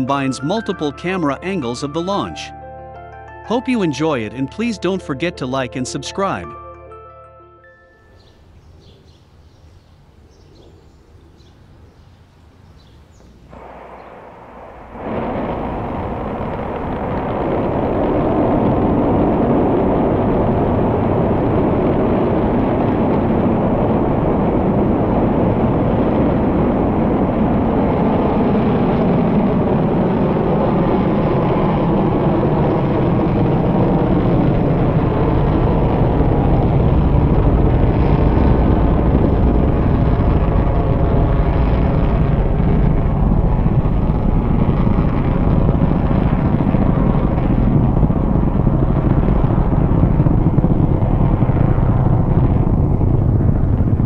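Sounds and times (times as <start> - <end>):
rocket engines rumbling: 0.0 - 2.5, 3.5 - 6.5, 8.2 - 54.0.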